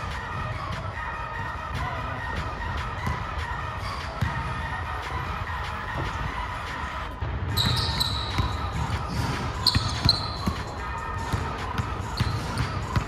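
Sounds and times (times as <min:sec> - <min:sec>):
sneakers squeaking: 0:07.5 - 0:13.0.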